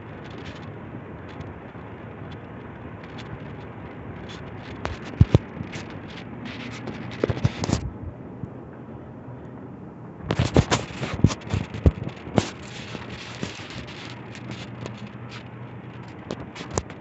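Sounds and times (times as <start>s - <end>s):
crackling clicks: 0.0s - 8.8s, 9.4s - 17.0s
ceiling fans rushing air: 0.0s - 17.0s.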